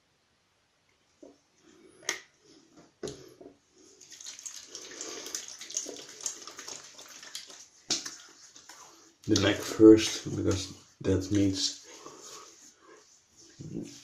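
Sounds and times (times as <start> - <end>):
tap water running into sink: 4.0 - 8.7.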